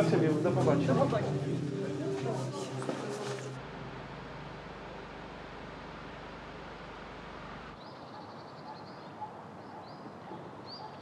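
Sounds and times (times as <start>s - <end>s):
noisy hum with low drone: 0.0s - 7.9s
small birds chirping: 7.8s - 11.0s.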